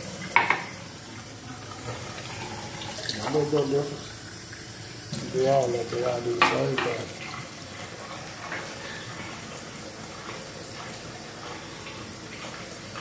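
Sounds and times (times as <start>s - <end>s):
tap running into steel sink: 0.3s - 0.8s, 5.0s - 5.5s, 6.3s - 7.1s.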